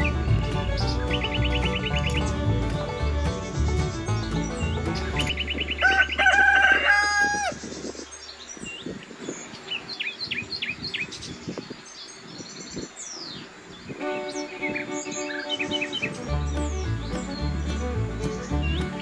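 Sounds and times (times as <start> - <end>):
small birds chirping: 0.0 - 19.0
rooster crowing: 5.7 - 7.6.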